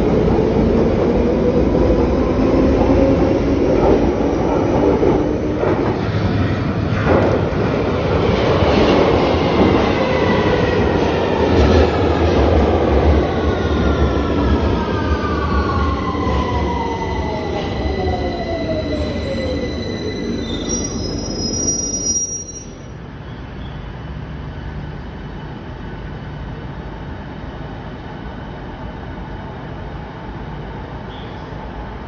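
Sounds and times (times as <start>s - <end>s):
wheel and brake squeal: 19.0s - 23.8s, 31.1s - 31.5s.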